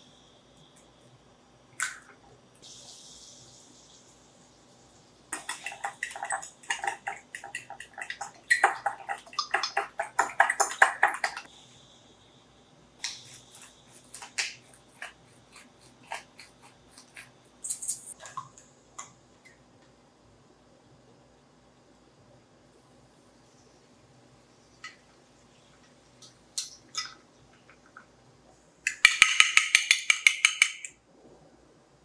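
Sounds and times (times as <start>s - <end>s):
eggs beaten in a glass dish: 5.3s - 11.5s, 28.9s - 31.0s.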